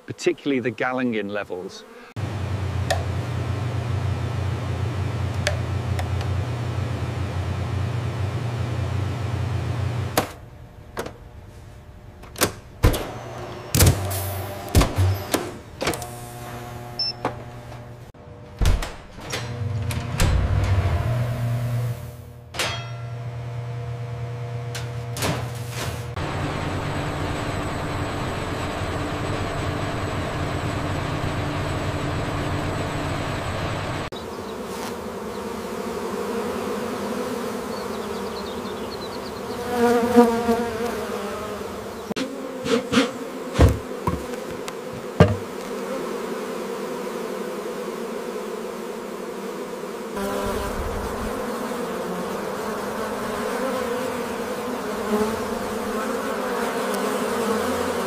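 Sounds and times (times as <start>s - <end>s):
honeybee colony buzzing: 0.0s - 10.4s, 26.2s - 58.0s
single bee buzz rising and falling: 1.8s - 2.3s, 34.2s - 58.0s
low machine hum: 2.2s - 34.6s
sharp loud knocks: 42.6s - 45.6s.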